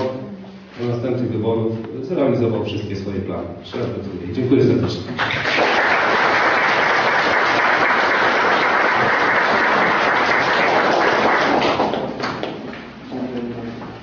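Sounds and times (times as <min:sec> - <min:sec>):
audience applauding: 0:05.2 - 0:12.6.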